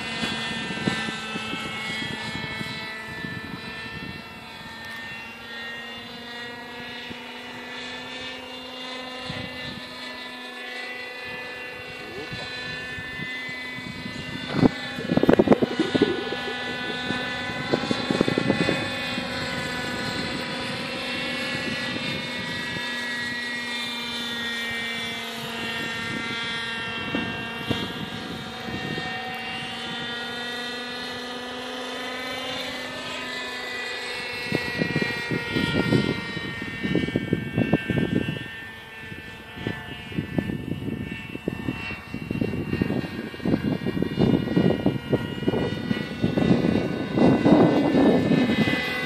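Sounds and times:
model helicopter engine and rotor whine: 0.0 - 49.0
wind buffeting microphone: 0.0 - 49.0.

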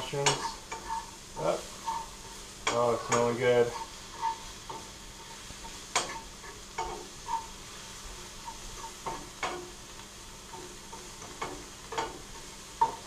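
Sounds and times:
utensil scraping pan: 0.0 - 9.8
mushrooms sizzling in butter: 0.0 - 13.0.

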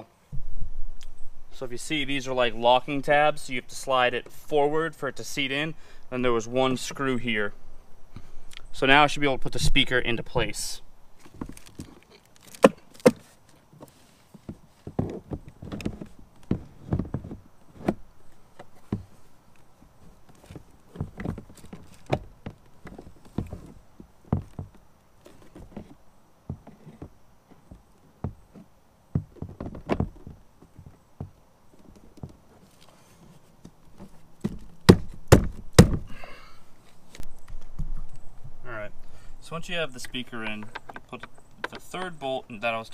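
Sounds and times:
knocks and thuds on plastic: 29.1 - 30.4, 34.4 - 36.1
sharp knocks: 34.5 - 36.1.

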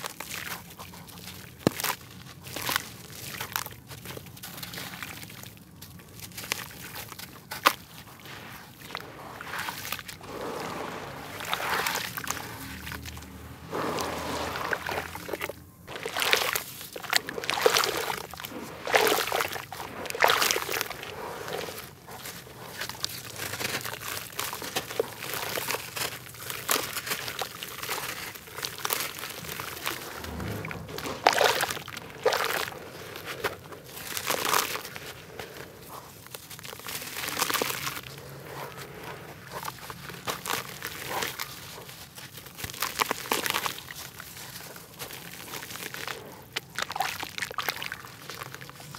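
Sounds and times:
hands squelching through wet clay: 0.0 - 48.9
clumps dropping into muddy water: 14.0 - 21.6, 28.9 - 35.1.

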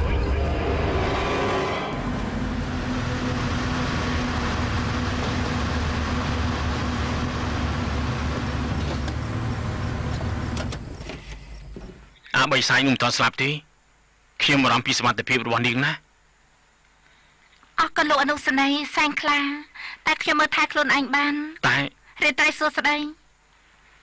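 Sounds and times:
car engine hum: 0.0 - 12.2
road noise: 0.0 - 12.2.

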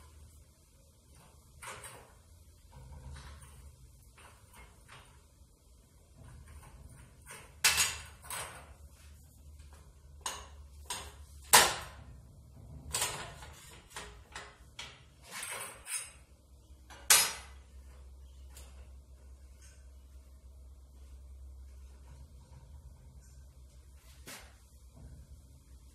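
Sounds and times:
metallic clunks and scrapes of tube roller: 1.1 - 5.3, 6.1 - 16.3.

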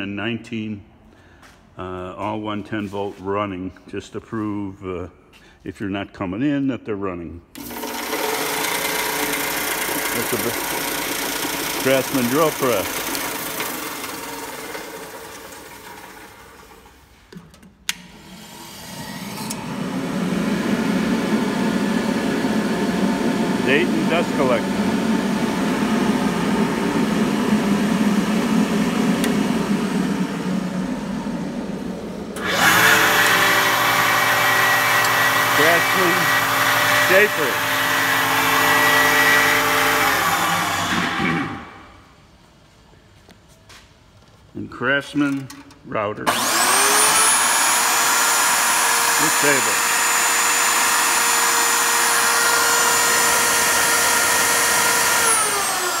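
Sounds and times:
dust collector blower hum: 7.6 - 16.9, 17.9 - 42.1, 46.2 - 56.0
shaper motor whine: 18.2 - 41.9, 46.3 - 56.0.

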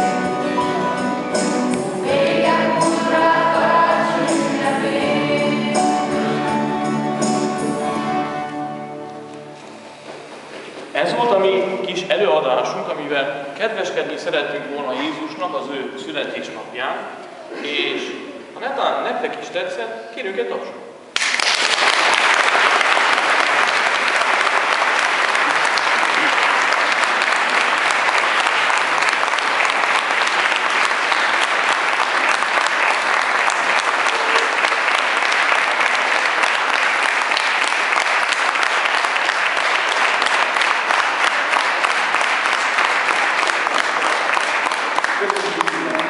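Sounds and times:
audience applauding: 21.2 - 46.0.

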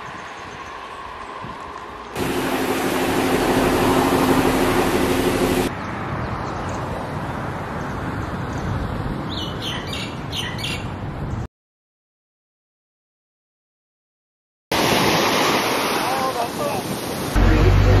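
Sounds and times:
wind: 0.0 - 11.5, 14.7 - 18.0
sea rushing: 2.1 - 5.7, 14.7 - 18.0
bus engine humming: 2.2 - 5.7, 17.4 - 18.0
bird chirping: 7.8 - 11.4.

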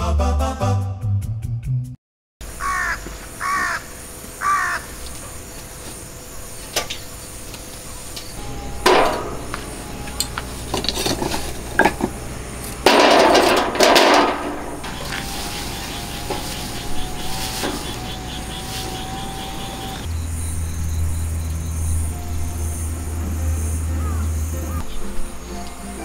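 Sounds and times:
low hum: 2.4 - 26.0
wood shavings rustling: 2.6 - 20.1
charcoal clinking on a grill: 8.8 - 19.4.

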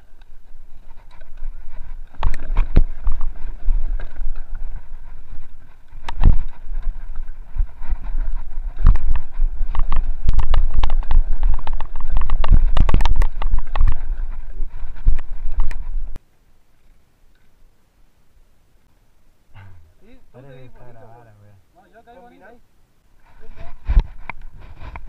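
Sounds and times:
bike rattling over roots and rocks: 0.0 - 16.1
wind buffeting microphone: 0.0 - 16.2.

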